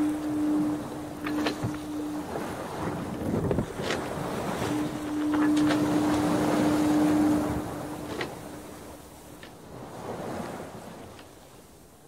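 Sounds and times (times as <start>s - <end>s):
low hum: 0.0s - 9.6s
rushing surf-like noise: 0.0s - 10.5s.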